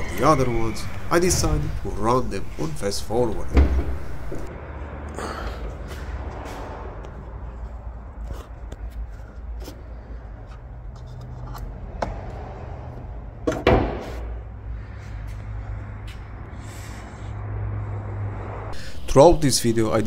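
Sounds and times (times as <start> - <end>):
car bonnet clunk: 3.4 - 4.5.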